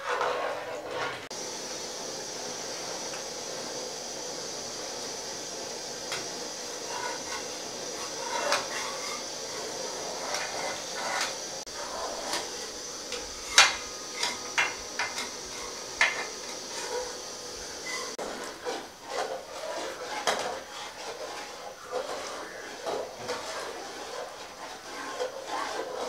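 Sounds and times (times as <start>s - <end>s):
steady hiss: 1.0s - 26.0s
metal skimmer scraping a metal pot: 6.1s - 17.2s, 17.8s - 26.0s.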